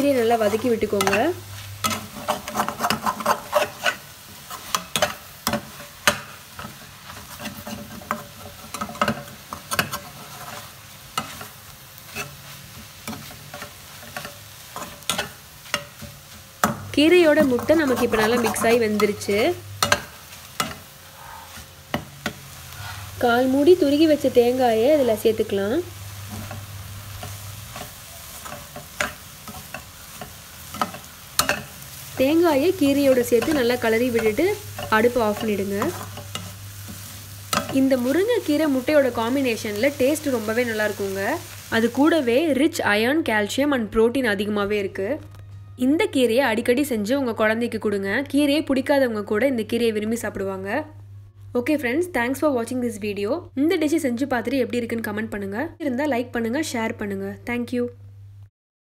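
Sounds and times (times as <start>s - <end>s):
frying sizzle: 0.0s - 43.0s
spatula scraping a pan: 0.3s - 23.2s, 26.2s - 41.7s.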